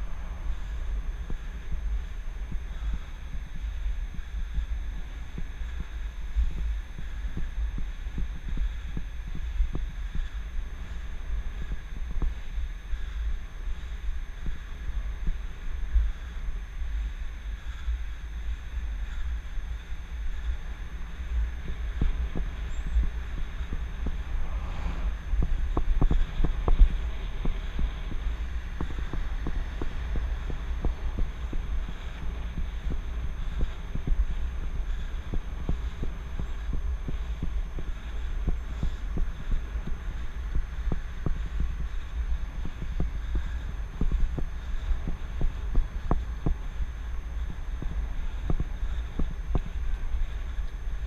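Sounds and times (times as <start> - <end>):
wind rumbling on microphone: 0.0 - 51.0.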